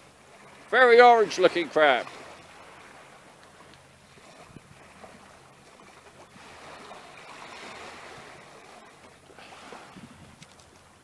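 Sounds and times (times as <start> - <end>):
sea waves: 0.0 - 11.0
wind noise: 4.2 - 5.2, 9.4 - 10.8.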